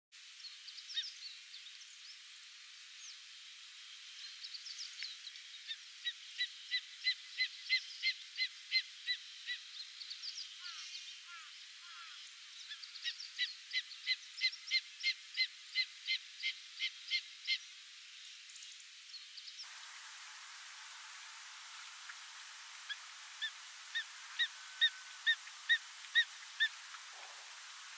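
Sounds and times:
eagle calling short high notes: 0:22.6 - 0:27.9.

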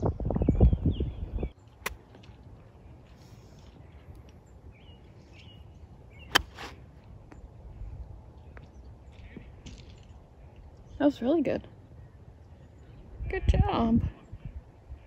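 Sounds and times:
birds chirping faintly: 0:00.4 - 0:15.0
golf club striking ball: 0:06.3 - 0:06.8
club swishing through turf: 0:06.4 - 0:06.8.

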